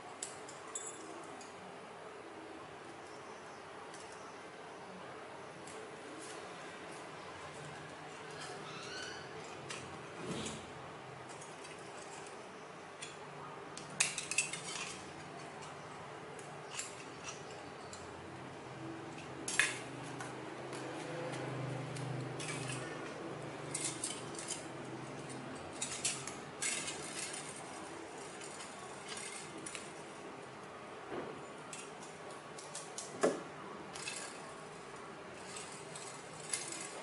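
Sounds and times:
aluminium strips clicking and crinkling: 5.6 - 30.8, 31.5 - 37.0.

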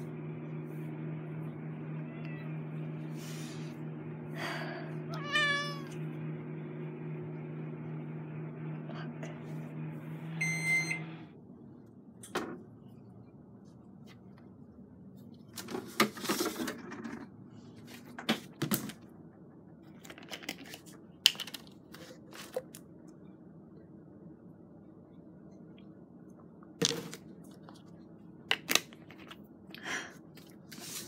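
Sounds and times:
microwave oven humming: 0.0 - 31.0
microwave long beep: 9.9 - 11.4.

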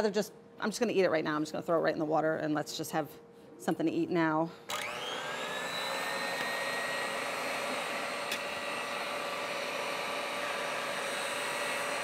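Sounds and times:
stand mixer motor whining: 4.7 - 12.0.

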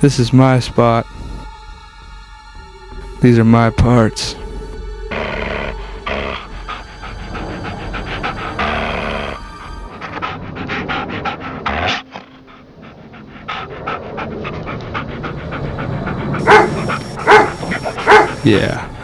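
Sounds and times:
background music: 0.0 - 19.0
dog panting rapidly: 6.1 - 19.0.

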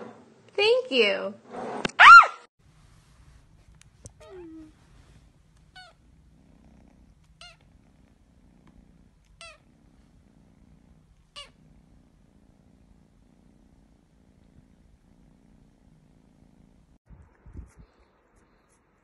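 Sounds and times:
kitten purring: 3.2 - 17.0
kitten squeaks: 4.2 - 4.7, 5.7 - 6.0.

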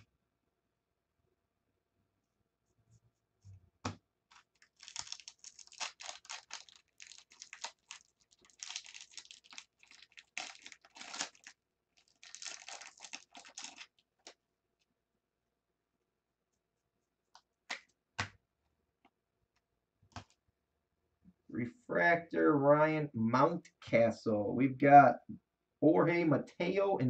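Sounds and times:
foil wrapper tearing and crinkling: 4.3 - 14.3.

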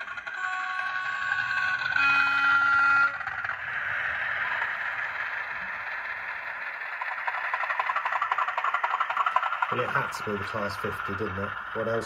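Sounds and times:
model locomotive horn: 0.0 - 3.5
recorded diesel engine sound: 0.0 - 12.0.

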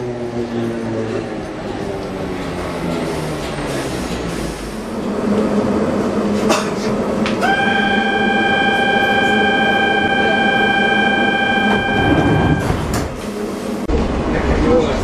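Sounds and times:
train low hum: 0.0 - 15.0
steady warning beep: 7.4 - 12.9.

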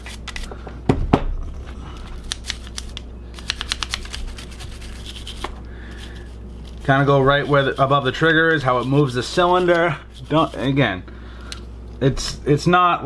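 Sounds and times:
brush scrubbing metal: 3.7 - 10.8.

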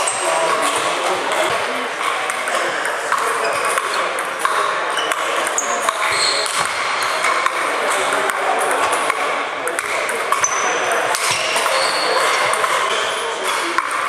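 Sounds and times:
ping pong balls clicking: 0.0 - 14.0.

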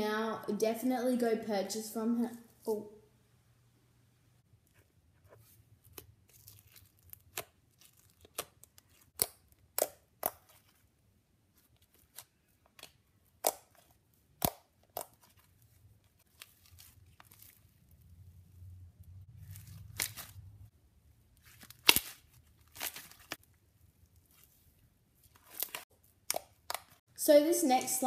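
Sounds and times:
foam-bead slime popping and crackling: 5.8 - 10.9, 19.4 - 20.5, 21.4 - 23.5, 24.1 - 27.0.

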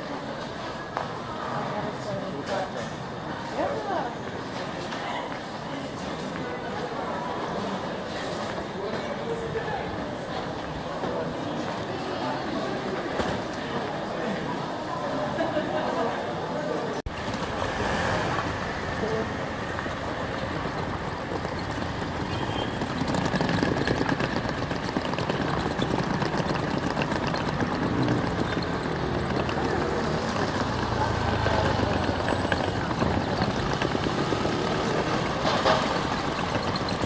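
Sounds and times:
cars and vans idling and passing: 17.0 - 37.0.

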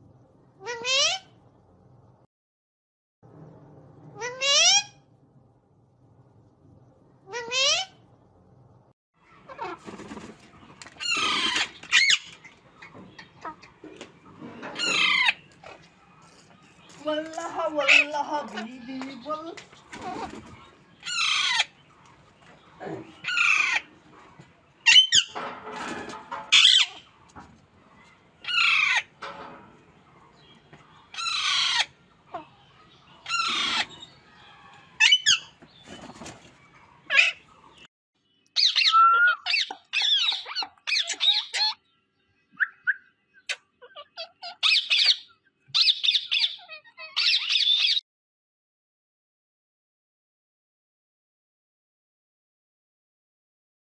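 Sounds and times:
parakeets screeching: 0.6 - 1.3, 4.2 - 5.0, 7.3 - 8.0, 10.9 - 13.6, 14.7 - 15.9, 19.9 - 21.8, 23.0 - 24.0, 24.8 - 27.1, 28.4 - 29.5, 31.0 - 36.4, 37.0 - 37.5, 38.6 - 41.8, 42.6 - 48.0
parakeets chattering: 9.3 - 13.9, 14.7 - 16.0, 17.6 - 22.0, 22.6 - 24.0, 26.4 - 27.3, 28.4 - 34.2, 38.6 - 41.8, 43.4 - 48.0.

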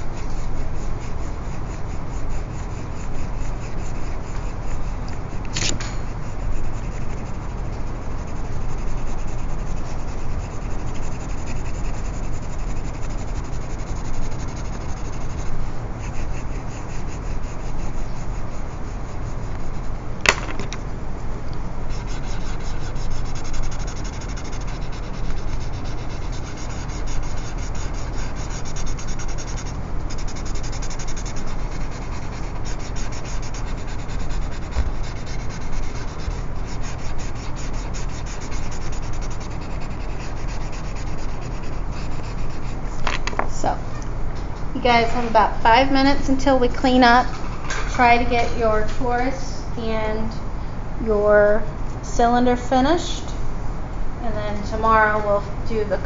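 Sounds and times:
pencil rubbing on paper: 0.0 - 5.5, 6.1 - 20.0, 21.9 - 42.8
sharp click: 5.1 - 6.0.

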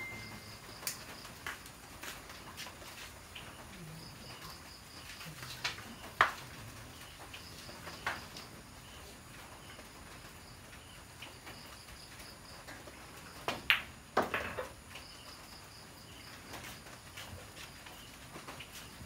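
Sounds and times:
insects chirping: 0.0 - 2.0, 3.3 - 19.0
pool balls clacking: 13.5 - 14.8.

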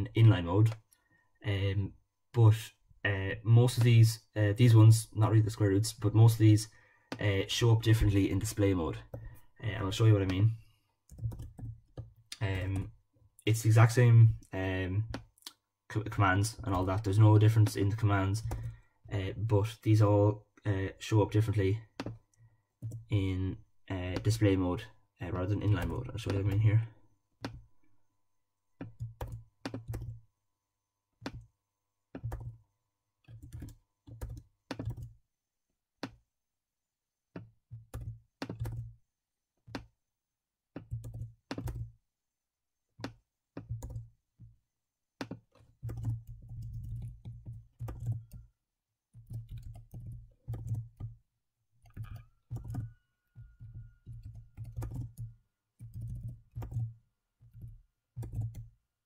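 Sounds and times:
typing on computer keyboard: 11.1 - 12.9, 18.4 - 18.8, 28.8 - 30.2, 32.2 - 32.6, 33.2 - 35.2, 37.4 - 39.0, 40.8 - 41.9, 43.0 - 44.1, 45.2 - 48.5, 49.1 - 51.2, 51.8 - 58.7.

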